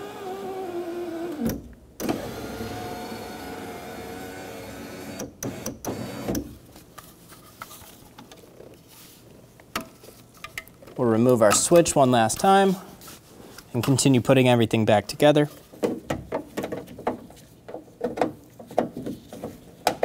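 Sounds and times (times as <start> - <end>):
faint handling noise: 6.6 - 20.0.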